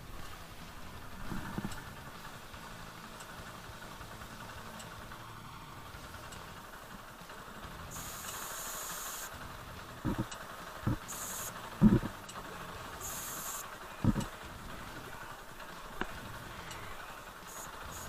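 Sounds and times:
motorcycle engine idling: 0.0s - 18.0s
high hiss: 7.8s - 9.4s, 10.0s - 12.1s, 12.9s - 14.2s, 15.8s - 18.0s.

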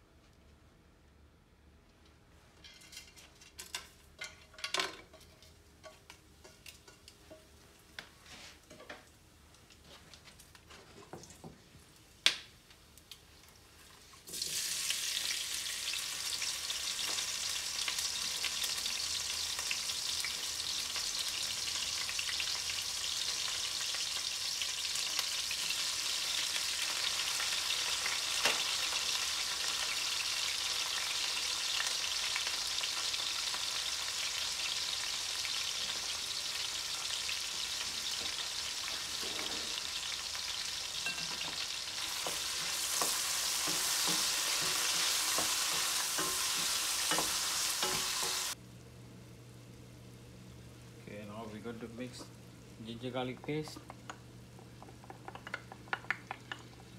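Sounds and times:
onion sizzling in a pan: 11.8s - 56.9s.

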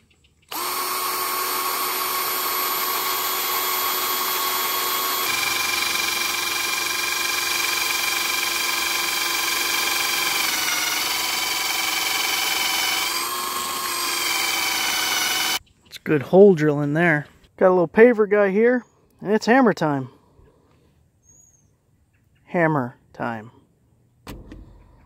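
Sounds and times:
cordless drill boring into wood: 0.5s - 15.6s.

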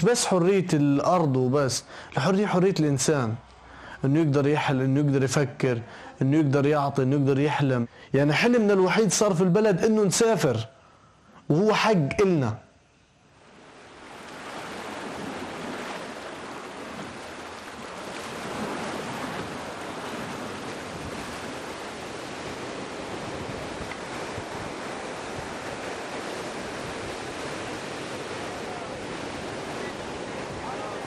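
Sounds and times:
waves breaking on shore: 13.3s - 31.0s.

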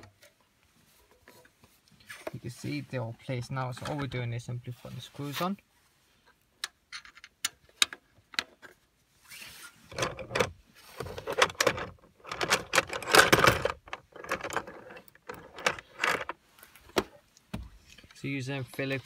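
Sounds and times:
metal and plastic scraping and rattling: 3.6s - 4.3s, 9.8s - 17.2s.

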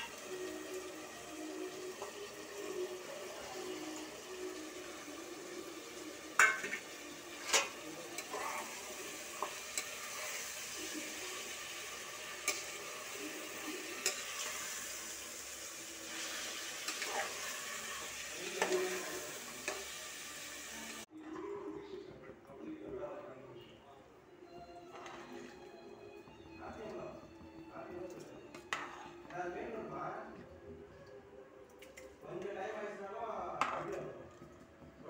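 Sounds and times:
vegetables sizzling in hot oil: 0.0s - 21.1s
spatula scraping and knocking pot: 28.6s - 29.2s.

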